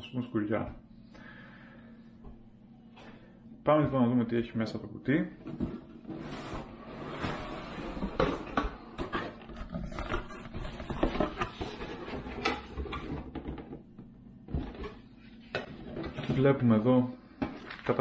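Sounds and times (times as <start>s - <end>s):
cardboard box packaging rustling: 8.2s - 13.5s.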